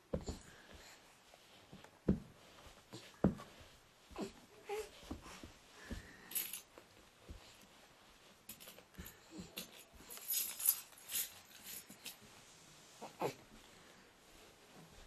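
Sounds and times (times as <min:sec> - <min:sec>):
keys jingling: 0:09.6 - 0:12.2.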